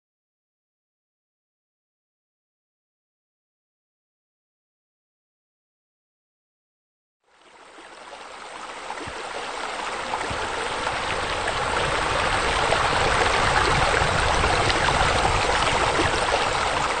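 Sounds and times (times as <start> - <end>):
water splashing into pond: 7.5 - 17.0.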